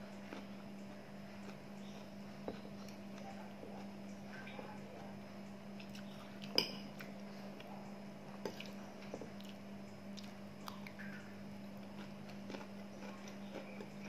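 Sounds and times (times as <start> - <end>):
steady low hum: 0.0 - 14.0
person chewing: 0.1 - 3.9, 8.4 - 9.6, 10.2 - 14.0.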